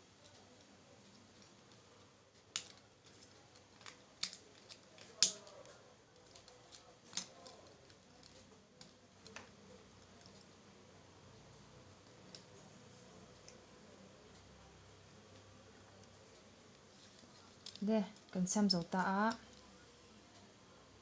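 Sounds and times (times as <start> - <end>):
plastic clicks and crackles: 0.2 - 10.6, 12.0 - 12.6, 15.3 - 20.5.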